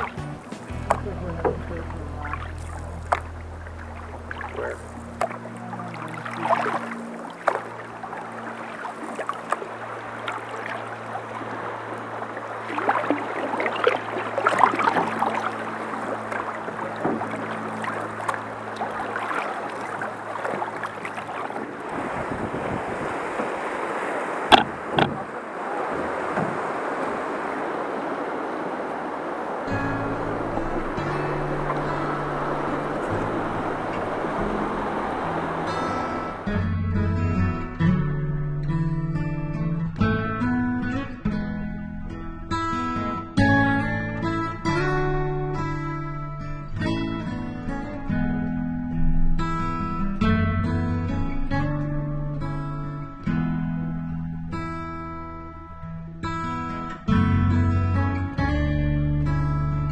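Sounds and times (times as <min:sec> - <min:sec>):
paddles dipping and splashing: 0:00.0 - 0:36.7
rapids rushing: 0:00.0 - 0:36.8
river water rushing past hull: 0:00.0 - 0:57.7
sharp knocks: 0:24.5 - 0:25.2.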